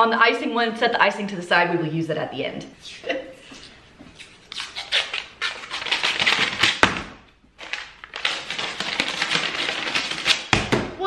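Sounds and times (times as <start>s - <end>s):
paper wrapper tearing: 4.5s - 7.0s, 7.6s - 10.5s.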